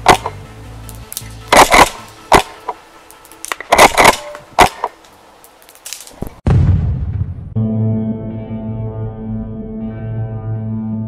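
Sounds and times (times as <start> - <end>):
airsoft shotgun firing: 0.0 - 0.4, 1.5 - 2.8, 3.5 - 5.0
faint background music: 0.0 - 5.0.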